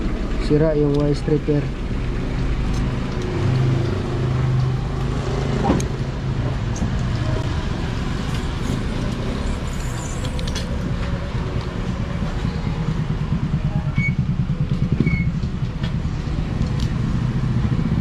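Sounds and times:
motor vehicles rumbling: 0:00.0 - 0:18.0.

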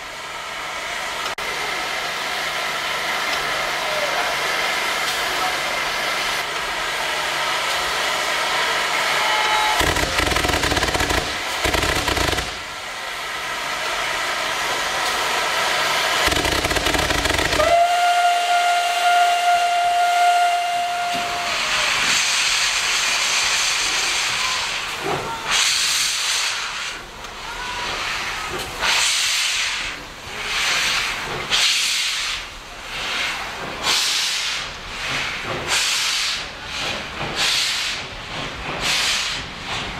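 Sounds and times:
steam hissing: 0:00.0 - 0:39.9
steam locomotive exhaust chuffs: 0:00.0 - 0:39.9
rush of steam from drain cocks: 0:01.2 - 0:39.9
steam locomotive whistle: 0:09.0 - 0:10.1, 0:16.3 - 0:22.4.

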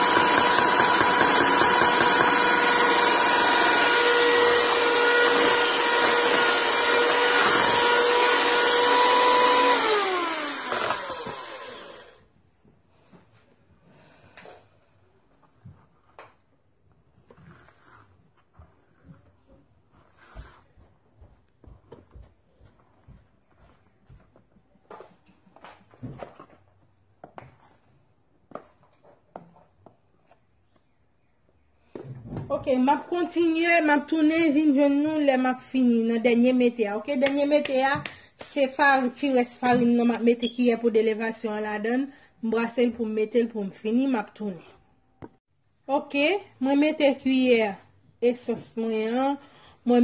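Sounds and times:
electric hand mixer whining: 0:00.0 - 0:12.2.

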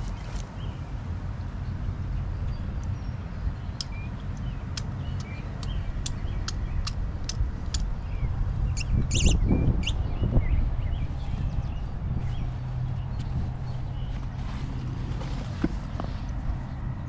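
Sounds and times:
wind rumbling on microphone: 0:00.0 - 0:17.0
sharp clicks: 0:03.8 - 0:08.0
rustling: 0:11.1 - 0:16.4.

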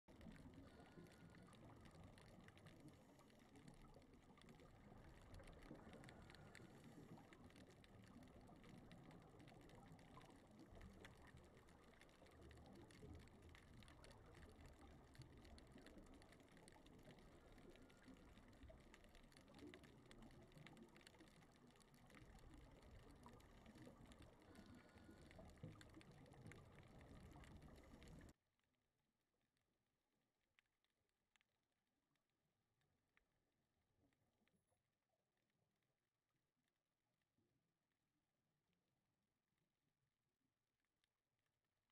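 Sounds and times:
muffled rush of water: 0:00.0 - 0:28.4
small underwater clicks: 0:00.0 - 0:38.4, 0:39.2 - 0:41.9.

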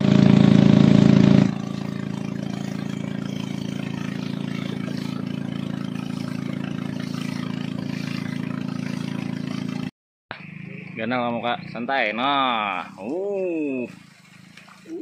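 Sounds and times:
boat motor running: 0:00.0 - 0:15.0.

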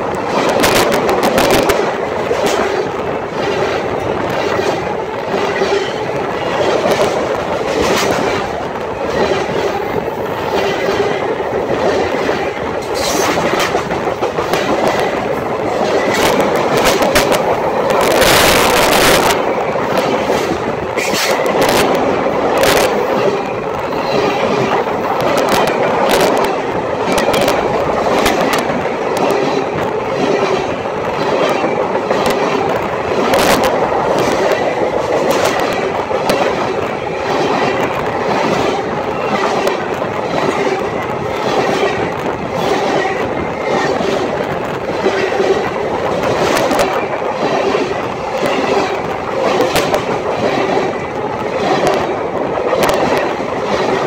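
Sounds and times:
freight train wheels rumbling on rails: 0:00.0 - 0:54.0
wheels clacking over rail joints: 0:00.0 - 0:54.0.

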